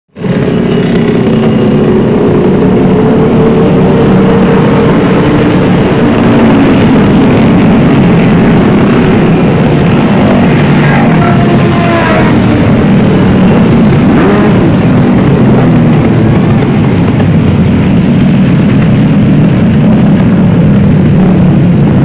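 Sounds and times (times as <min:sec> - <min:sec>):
motorcycle engines droning: 0:00.1 - 0:22.0.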